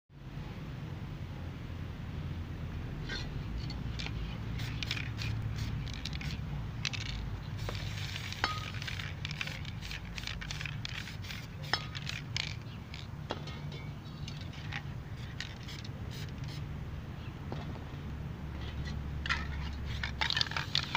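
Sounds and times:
spray paint can hissing: 3.9 - 13.1, 14.5 - 16.6, 19.3 - 20.9.

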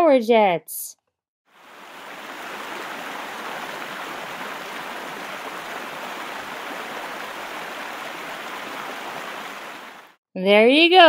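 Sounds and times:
water jets spraying: 1.6 - 10.2.

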